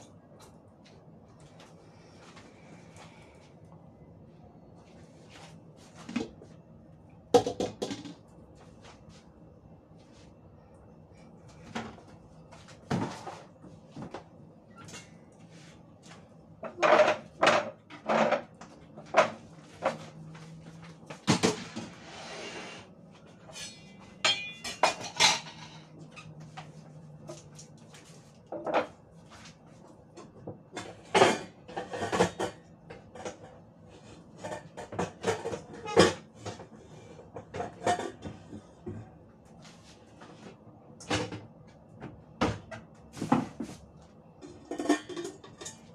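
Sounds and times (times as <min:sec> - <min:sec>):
dishes and pots clinking: 0:23.4 - 0:26.4, 0:30.2 - 0:33.6, 0:34.4 - 0:39.1, 0:44.4 - 0:45.9.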